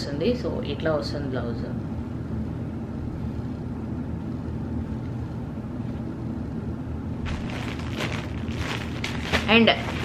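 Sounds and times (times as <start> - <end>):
low background rumble: 0.0 - 10.0
packet rustling: 7.2 - 10.0.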